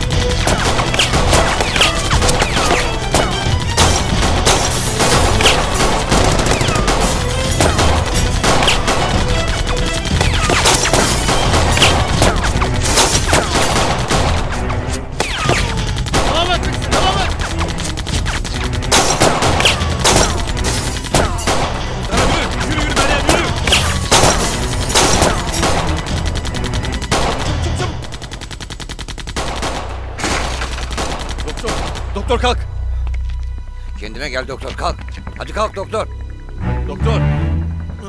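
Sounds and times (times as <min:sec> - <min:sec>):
heavy machine gun firing bursts: 0:02.9 - 0:12.2, 0:15.8 - 0:29.9.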